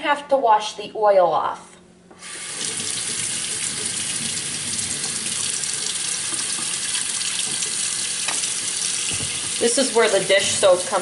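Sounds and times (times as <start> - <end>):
faucet running: 2.2 - 11.0.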